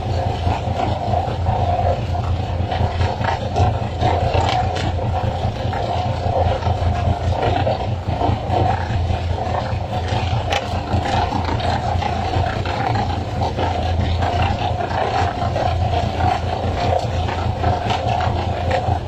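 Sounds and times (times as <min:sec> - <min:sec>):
boat engine droning: 0:00.0 - 0:19.0.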